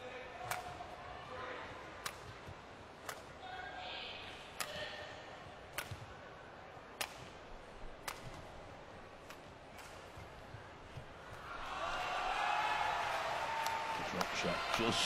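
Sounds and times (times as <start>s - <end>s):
rackets hitting shuttlecock: 0.4s - 1.0s, 2.0s - 3.4s, 5.6s - 6.1s, 6.9s - 8.6s, 9.2s - 11.7s.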